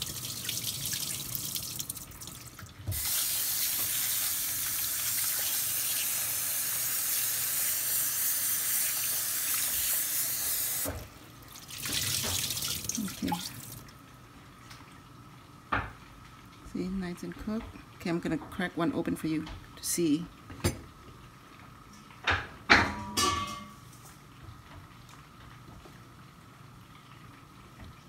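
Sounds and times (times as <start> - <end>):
tap water running into sink: 0.0 - 14.0.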